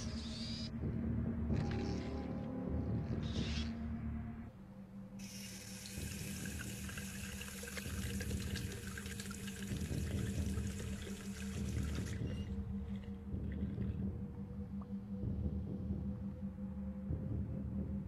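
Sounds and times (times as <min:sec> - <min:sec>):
steady low hum: 0:00.0 - 0:18.0
water splashing from washing: 0:05.3 - 0:12.4
tap water running into sink: 0:05.4 - 0:12.2.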